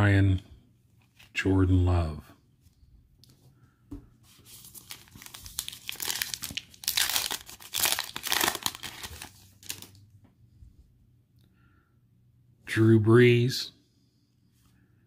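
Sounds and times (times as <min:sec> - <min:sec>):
foil wrapper crinkling and tearing: 0:04.5 - 0:10.0.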